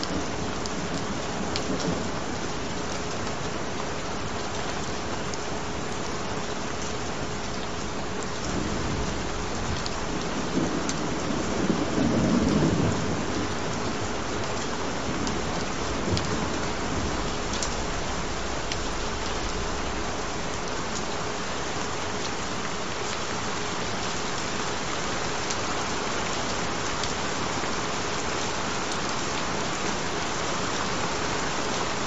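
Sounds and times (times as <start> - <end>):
steady rain: 0.0 - 32.0
thunder rolling: 8.5 - 13.6, 15.0 - 21.2.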